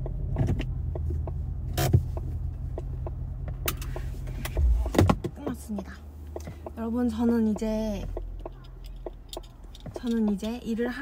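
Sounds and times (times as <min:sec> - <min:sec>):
low rumble in car cabin: 0:00.0 - 0:11.0
low bump: 0:04.4 - 0:05.6.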